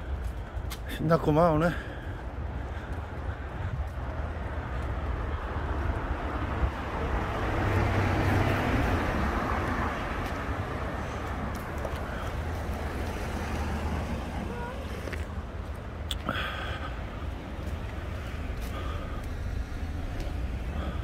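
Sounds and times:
vehicle passing by: 0:03.8 - 0:21.0.

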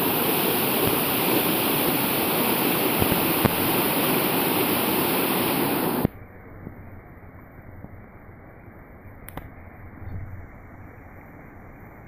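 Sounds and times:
water rushing: 0:00.0 - 0:06.1.

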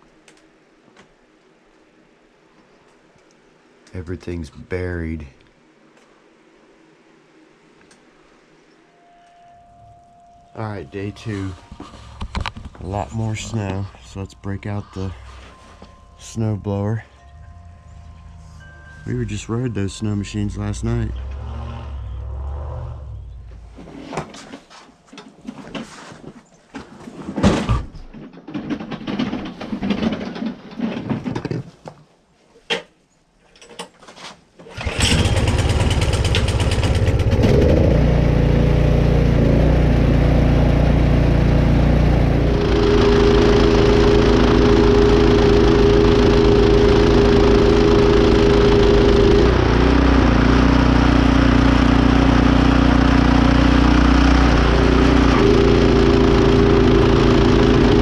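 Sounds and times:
snowblower engine running: 0:10.7 - 0:22.3, 0:34.7 - 0:58.0
handling knocks and rustles: 0:11.2 - 0:14.0, 0:23.6 - 0:34.6.

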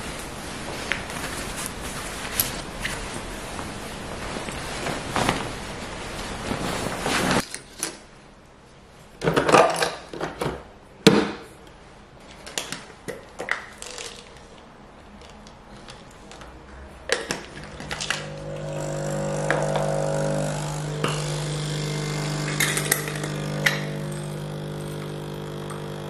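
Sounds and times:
shirt fabric rustling: 0:00.1 - 0:07.4.

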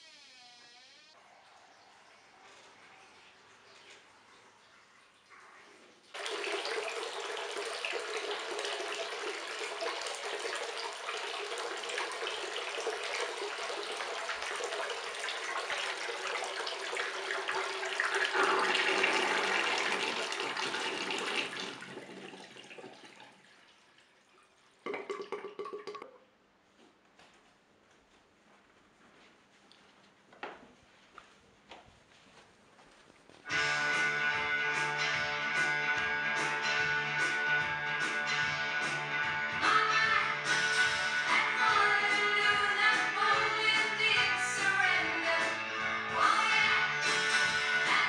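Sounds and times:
tap water running into basin: 0:03.2 - 0:26.2.

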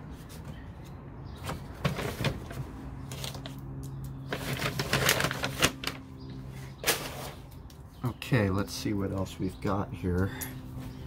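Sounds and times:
packing paper rustling: 0:04.3 - 0:06.0.

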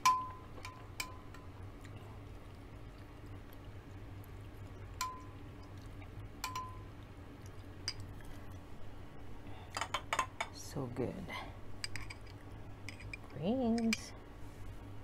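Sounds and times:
metal spoon clinking glass bowl: 0:06.4 - 0:06.8.

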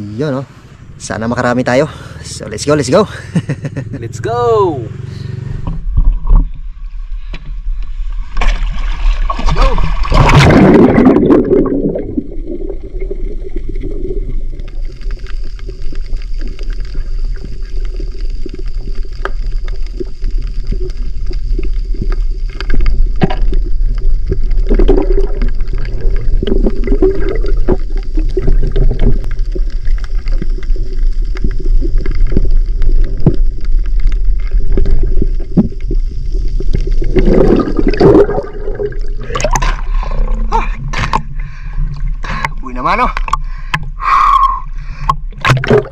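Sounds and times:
underwater rumble and gurgling: 0:00.0 - 0:03.0, 0:05.1 - 0:45.9
underwater clicks and knocks: 0:05.6 - 0:06.6, 0:20.7 - 0:36.0, 0:40.9 - 0:44.0, 0:45.0 - 0:45.9
water splashing: 0:05.8 - 0:45.9.

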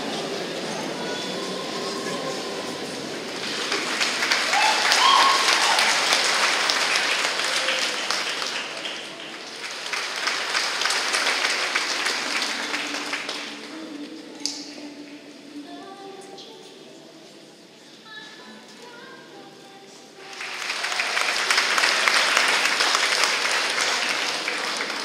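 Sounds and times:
audience applauding: 0:02.0 - 0:13.8, 0:20.2 - 0:25.0.

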